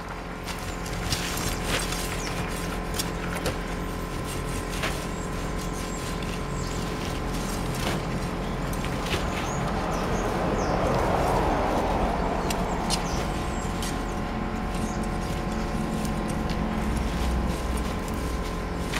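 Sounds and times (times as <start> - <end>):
low hum: 0.0 - 18.9
sickle scraping weeds: 0.3 - 18.9
broad rushing noise: 4.3 - 18.9.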